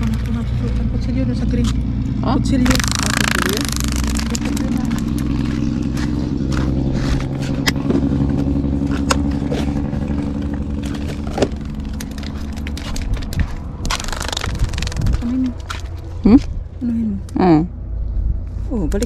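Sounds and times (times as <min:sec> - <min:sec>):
motor engine humming: 0:00.0 - 0:19.0
rustling: 0:02.7 - 0:16.2.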